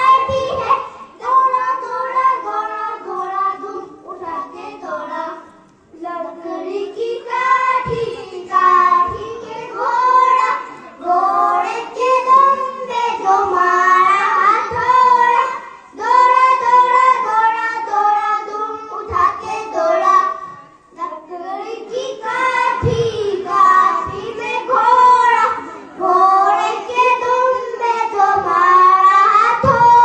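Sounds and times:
children singing together: 0.0s - 30.0s.

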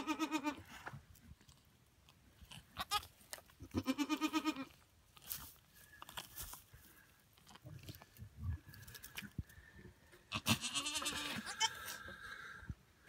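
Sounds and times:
goat bleating: 0.0s - 0.7s, 2.7s - 4.8s, 10.3s - 12.0s.

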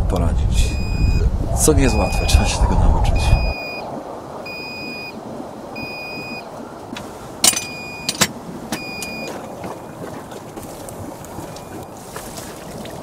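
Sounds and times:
noisy background: 0.0s - 3.9s
electronic warning beeps: 0.7s - 2.4s, 3.2s - 3.8s, 5.8s - 6.5s.

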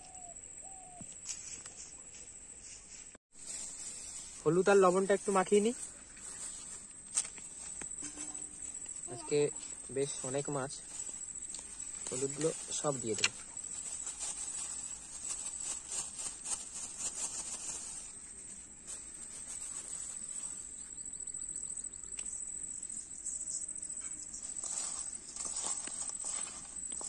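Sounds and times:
insect high-pitched drone: 0.0s - 1.6s, 4.9s - 15.8s, 20.4s - 27.0s.

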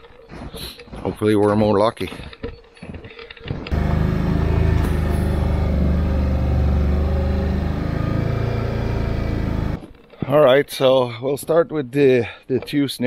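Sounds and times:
off-road vehicle engine running: 3.7s - 9.8s.

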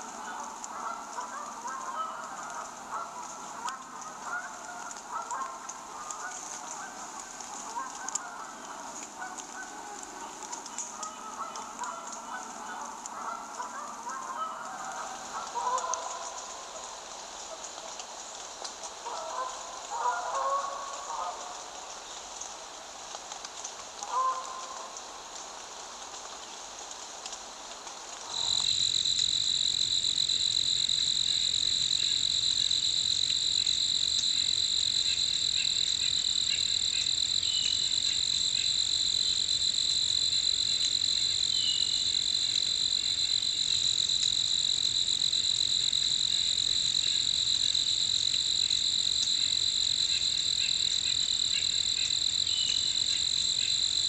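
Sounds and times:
soft hiss like light rain: 0.0s - 54.0s
crickets trilling: 28.2s - 54.0s.

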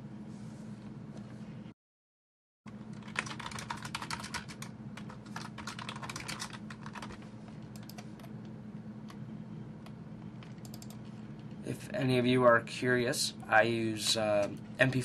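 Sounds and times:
steady low hum: 0.0s - 1.8s, 2.7s - 15.0s
typing on computer keyboard: 2.9s - 7.2s, 7.8s - 8.1s, 10.4s - 11.0s.

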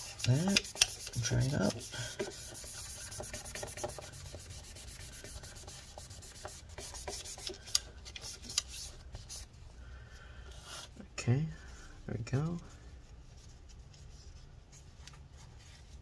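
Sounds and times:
paper towel scrubbing metal: 0.0s - 7.6s.

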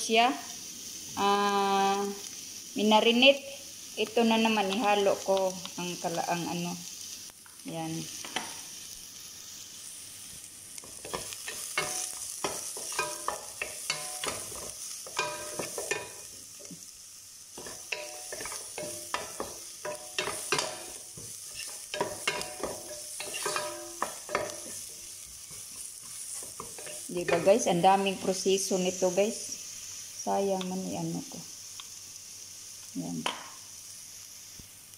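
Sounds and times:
onions sizzling in oil: 0.0s - 34.9s
wooden spoon scraping a pot: 17.6s - 27.6s.

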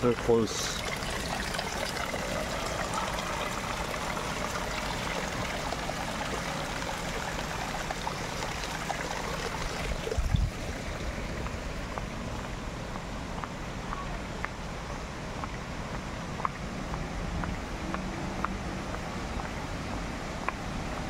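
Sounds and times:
running water rushing: 0.0s - 21.0s.

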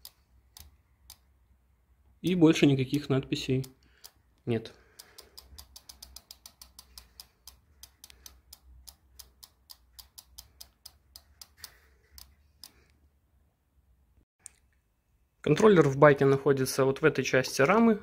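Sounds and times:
bicycle hub ratchet ticking: 4.9s - 12.7s.

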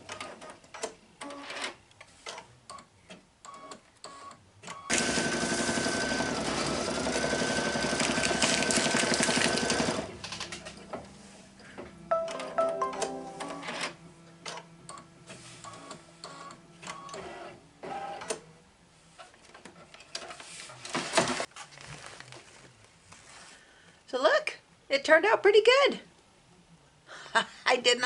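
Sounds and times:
embroidery machine stitching: 4.9s - 10.2s.

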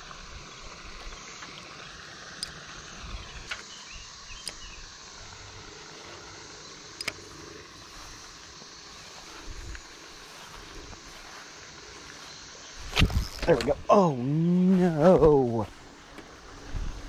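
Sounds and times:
insect hiss: 0.0s - 17.0s
sharp clicks: 3.2s - 4.8s, 6.8s - 7.3s, 12.8s - 13.8s.

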